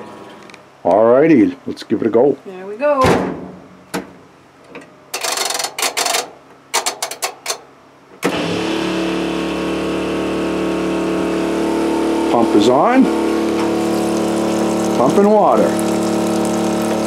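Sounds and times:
water pump humming: 0:08.2 - 0:17.0.

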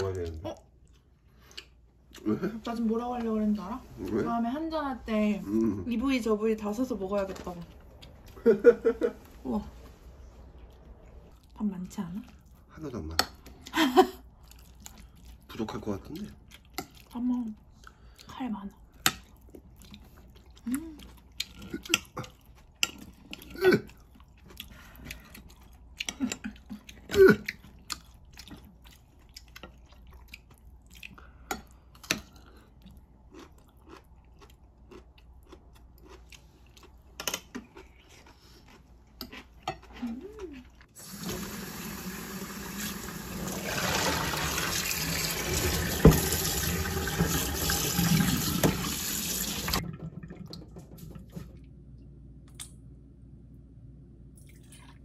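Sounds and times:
chewing: 0:14.3 - 0:41.0.

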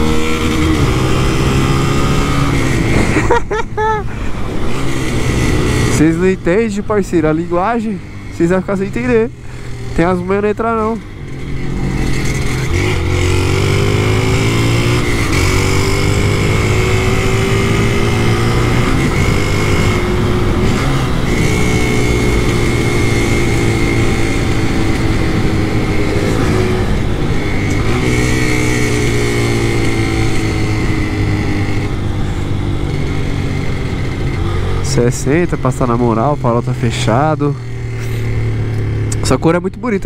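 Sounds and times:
moped engine revving: 0:00.0 - 0:40.0
wind rush on microphone: 0:02.3 - 0:03.3.

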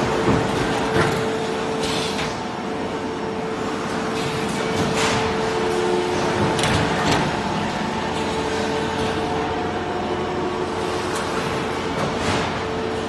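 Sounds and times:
production line machinery din: 0:00.0 - 0:13.0.

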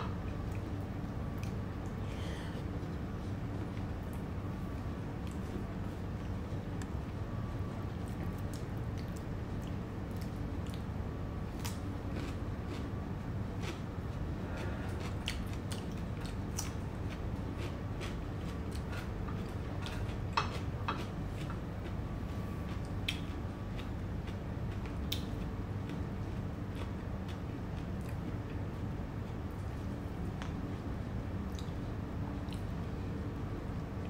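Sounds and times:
person chewing: 0:00.4 - 0:04.2, 0:08.0 - 0:10.9, 0:11.6 - 0:12.9, 0:14.5 - 0:22.0, 0:25.9 - 0:28.6.

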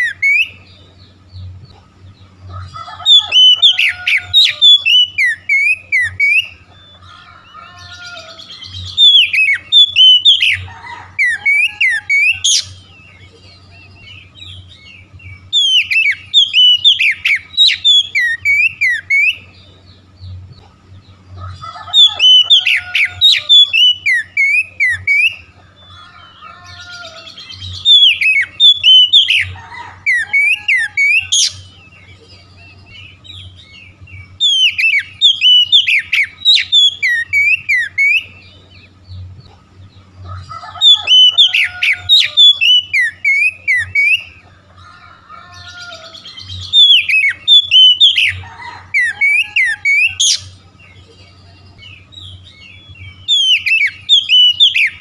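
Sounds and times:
bird singing whistled phrases: 0:03.0 - 0:07.0, 0:07.6 - 0:19.6, 0:21.9 - 0:25.5, 0:26.8 - 0:31.7, 0:32.6 - 0:38.5, 0:40.8 - 0:44.4, 0:45.7 - 0:50.5, 0:51.8 - 0:55.0.

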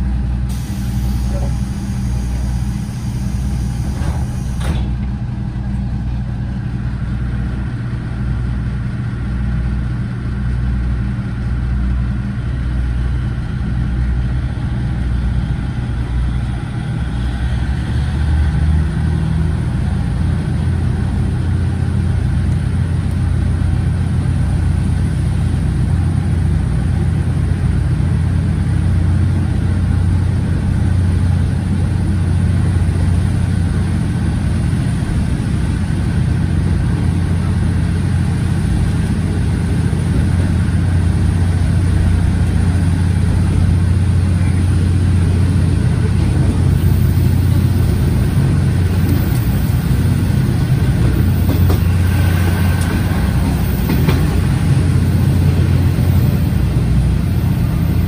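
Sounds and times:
train diesel engine under power: 0:00.0 - 0:58.0.

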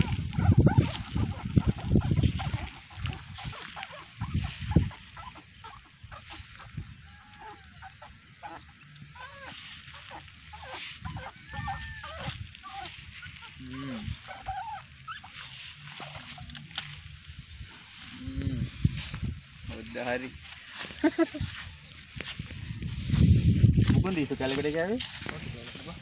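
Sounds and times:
honking animal calls: 0:00.0 - 0:18.7.

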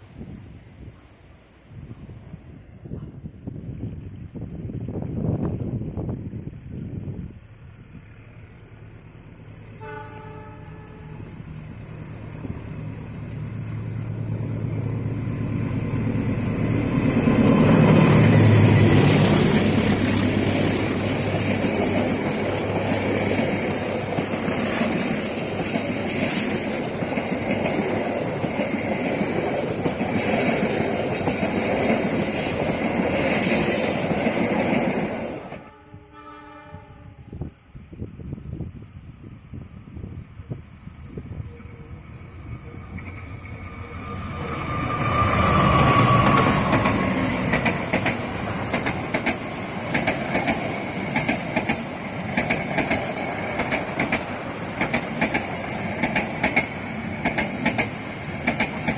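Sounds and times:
diesel locomotive engine drone: 0:00.0 - 0:58.9
distant train horn: 0:09.7 - 0:11.7, 0:35.6 - 0:37.7, 0:41.3 - 0:47.6
train wheels clacking over rail joints: 0:42.9 - 0:58.9.

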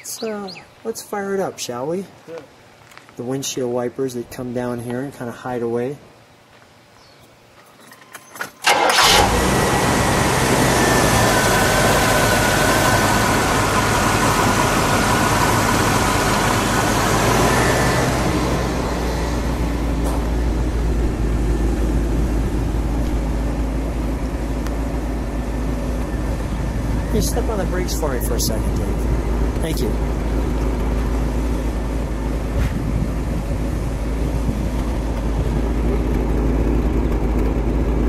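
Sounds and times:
car engine cranking and running: 0:08.6 - 0:38.0.

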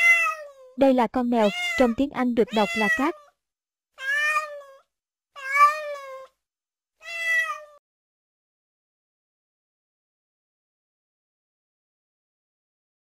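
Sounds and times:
cat meowing: 0:00.0 - 0:00.8, 0:01.4 - 0:03.3, 0:04.0 - 0:06.4, 0:07.0 - 0:07.8.

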